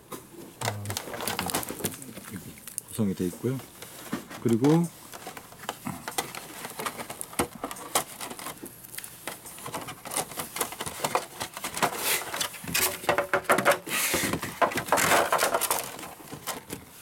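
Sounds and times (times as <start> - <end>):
rustling: 0.6 - 17.0
plastic parts clicking and tapping: 3.8 - 16.9.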